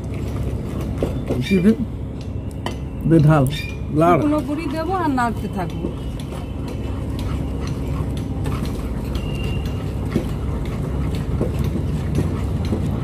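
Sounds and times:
rolling pin mashing dough in pot: 3.9 - 13.0.

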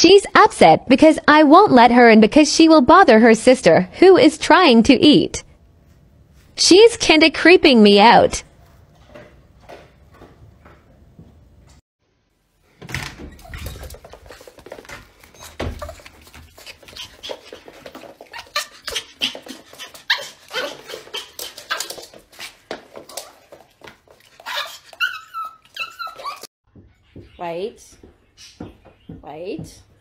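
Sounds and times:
dog barking and whining: 15.3 - 22.1, 24.4 - 26.5.

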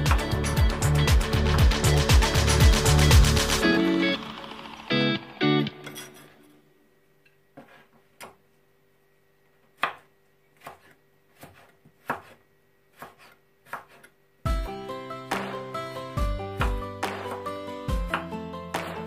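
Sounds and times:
knife slicing carrot on board: 7.6 - 8.4, 9.8 - 14.2.

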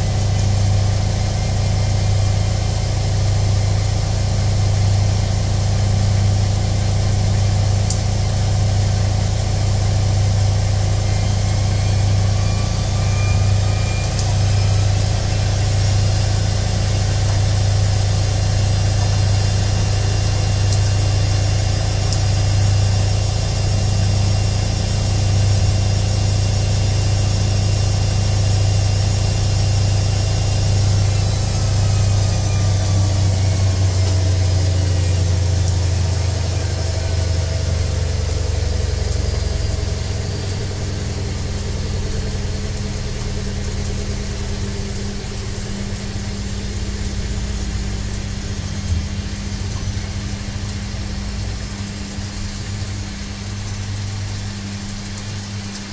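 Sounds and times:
washing machine running: 0.0 - 55.9.

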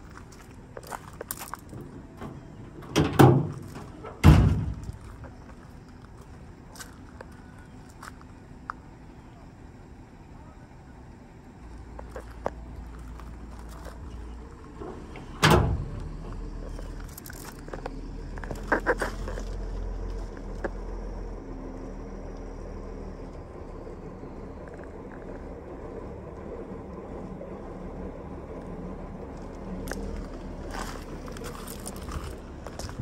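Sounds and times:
pickup tailgate slamming shut: 2.2 - 4.9, 15.2 - 16.0.

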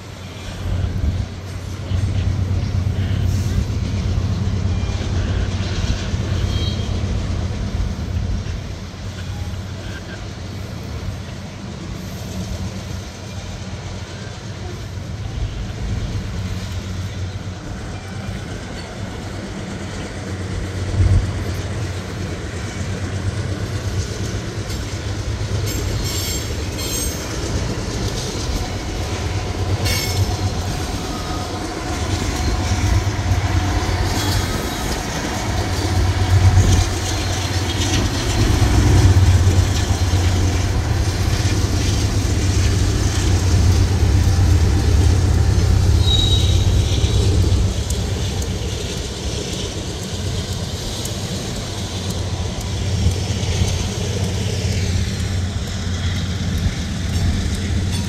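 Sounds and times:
freight train rumbling: 0.0 - 58.0
train wheels clacking: 0.0 - 58.0.

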